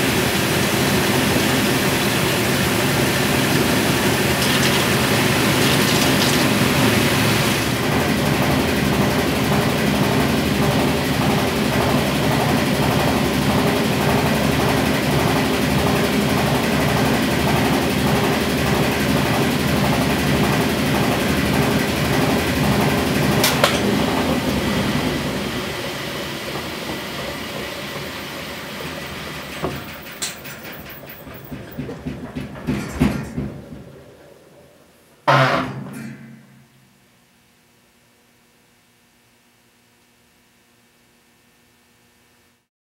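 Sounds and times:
washing machine spin cycle: 0.0s - 42.7s
mechanical knocks: 29.4s - 34.3s, 35.2s - 36.7s.

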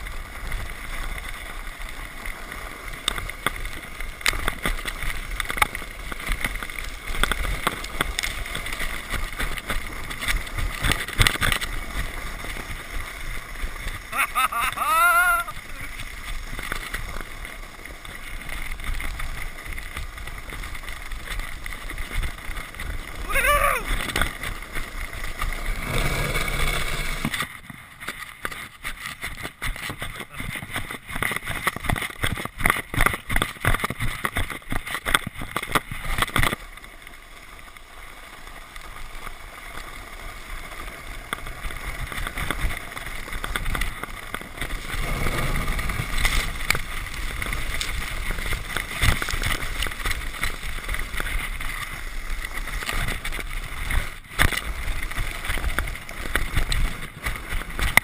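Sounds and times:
sled sliding over snow: 0.0s - 58.0s
sled bumps and knocks: 3.0s - 36.6s.

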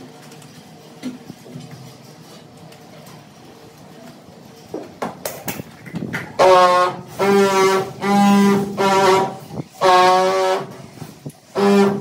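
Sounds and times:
horn long blasts: 6.4s - 12.0s.

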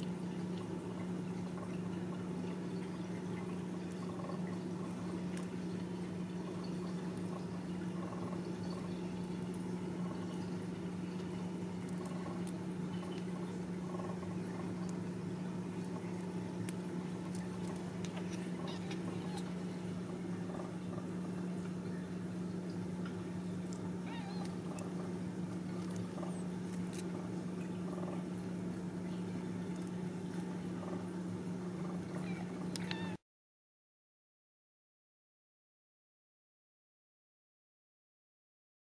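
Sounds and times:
steady low hum: 0.0s - 33.2s
kittens suckling: 6.5s - 21.8s, 23.1s - 28.3s
faint high kitten squeaks: 18.6s - 19.5s, 24.0s - 24.6s, 32.2s - 33.2s.

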